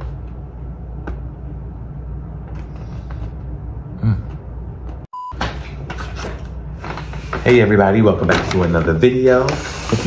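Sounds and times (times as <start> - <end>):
low room hum: 0.0 - 10.0
short beep: 5.1 - 5.4.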